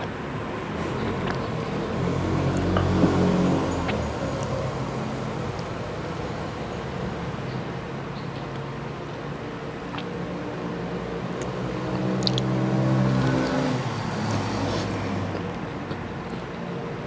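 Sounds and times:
vehicle engine hum: 0:00.0 - 0:17.0
clicks of eating and drinking: 0:07.5 - 0:10.4, 0:11.2 - 0:12.5, 0:14.7 - 0:16.7.

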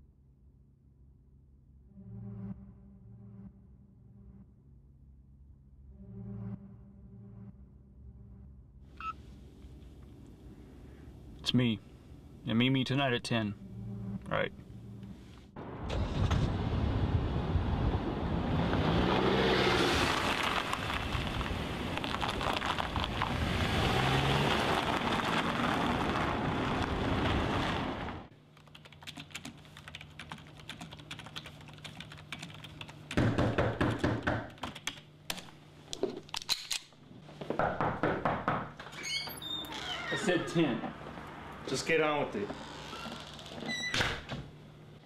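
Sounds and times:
steady low hum: 0:00.0 - 0:15.8
car road noise: 0:13.6 - 0:28.3, 0:40.3 - 0:42.6
typing on computer keyboard: 0:28.6 - 0:33.2, 0:34.5 - 0:35.0.

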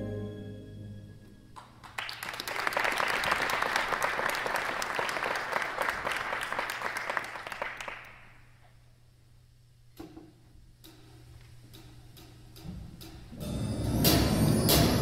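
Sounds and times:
audience applauding: 0:01.6 - 0:08.4.

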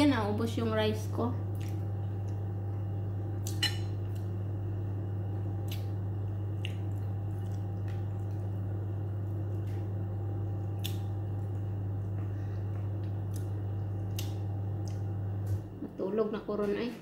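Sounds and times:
low hum: 0:00.0 - 0:17.0
wet eating and chewing sounds: 0:01.4 - 0:04.4, 0:05.3 - 0:15.6.

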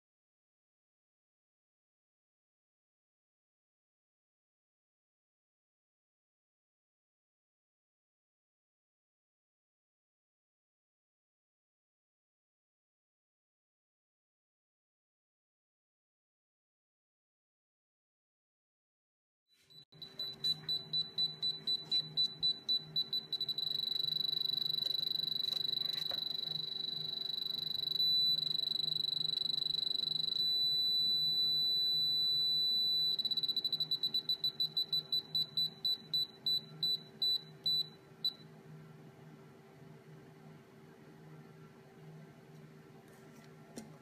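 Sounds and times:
piezo buzzer beeping: 0:20.0 - 0:38.4.

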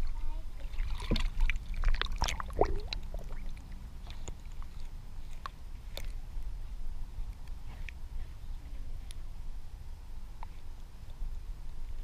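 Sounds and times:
water splashing and sloshing: 0:00.0 - 0:08.0
muffled underwater rumble: 0:00.0 - 0:12.0.

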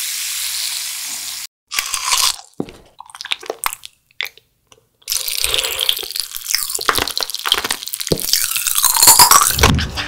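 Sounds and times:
crunchy chewing: 0:05.1 - 0:09.7.

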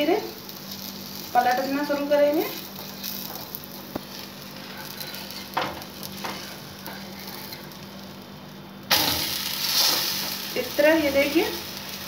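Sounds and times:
pancake sizzling in oil: 0:00.0 - 0:12.0
spatula scraping pan: 0:04.1 - 0:07.7.

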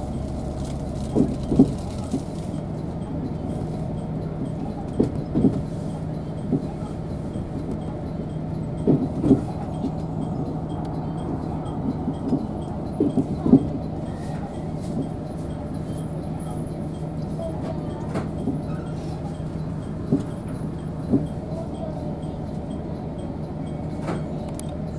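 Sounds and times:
railcar engine hum: 0:00.0 - 0:24.9.

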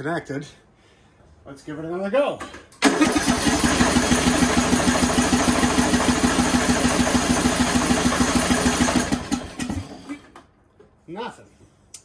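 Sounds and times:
mower starter cranking engine: 0:02.8 - 0:10.5.

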